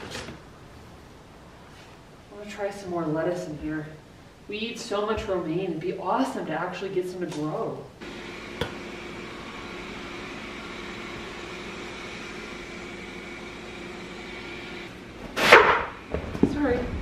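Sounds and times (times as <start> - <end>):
steady machine hum: 8.0 - 17.0.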